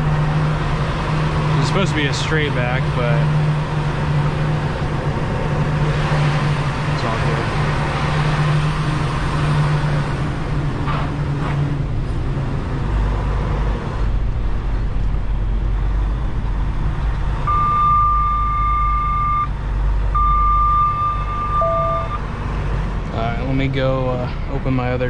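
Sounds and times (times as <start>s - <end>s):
diesel truck engine rumbling: 0.0s - 25.0s
high-pitched warning beep: 17.5s - 19.5s, 20.2s - 22.2s.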